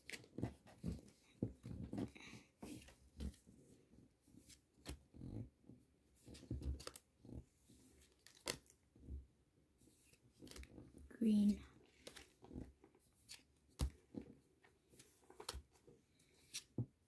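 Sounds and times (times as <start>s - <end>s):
cards clicking and sliding: 15.0s - 16.8s.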